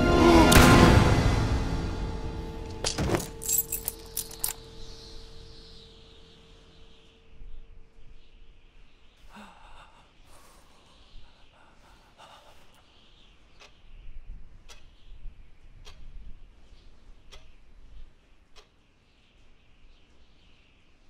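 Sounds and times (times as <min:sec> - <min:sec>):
low rumble: 0:00.0 - 0:08.2
young man gasping: 0:09.2 - 0:12.9.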